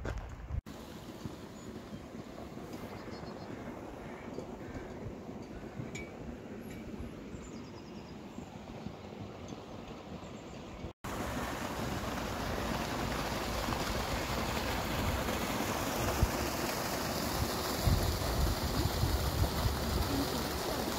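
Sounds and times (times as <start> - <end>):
outdoor background: 0.0 - 20.9
wind on microphone: 17.2 - 20.8.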